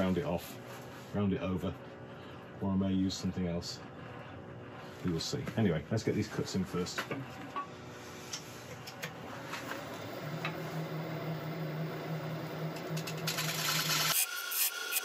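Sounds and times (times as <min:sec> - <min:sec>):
wood lathe humming: 0:07.2 - 0:15.0
chisel cutting spinning wood: 0:09.1 - 0:15.0.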